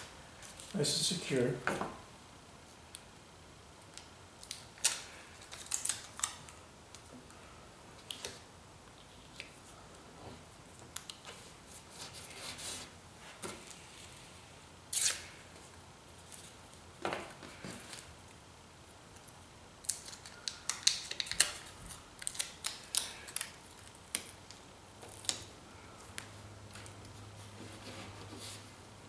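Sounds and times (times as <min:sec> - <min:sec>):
adhesive tape ripping: 0:14.9 - 0:15.3, 0:19.8 - 0:24.3.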